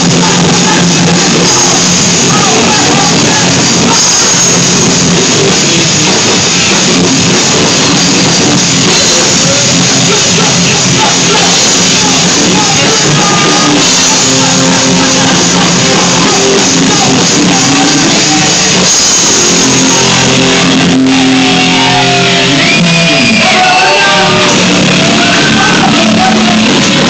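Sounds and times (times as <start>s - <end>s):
person singing: 0.0s - 7.0s, 7.6s - 27.0s
drum kit: 0.0s - 27.0s
live rock band playing: 0.0s - 27.0s.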